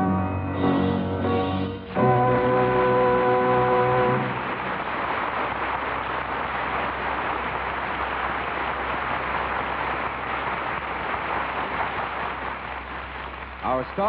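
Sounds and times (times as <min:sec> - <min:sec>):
musical chord: 0:00.0 - 0:04.6.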